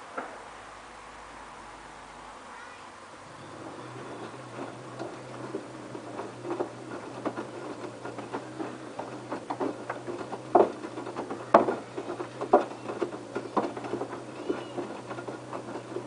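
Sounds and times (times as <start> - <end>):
washing machine low hum: 0.0 - 16.0
water sloshing in washing machine: 3.2 - 16.0.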